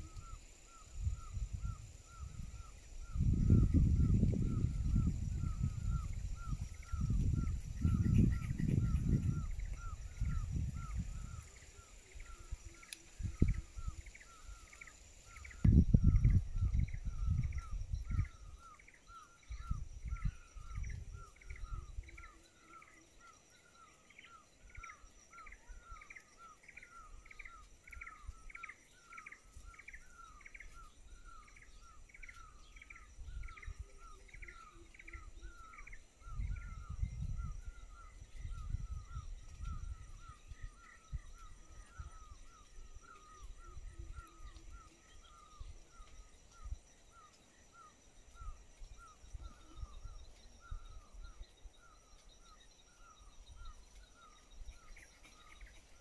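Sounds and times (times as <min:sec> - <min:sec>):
wind buffeting microphone: 0:00.0 - 0:14.7, 0:15.3 - 0:22.8, 0:27.2 - 0:46.9.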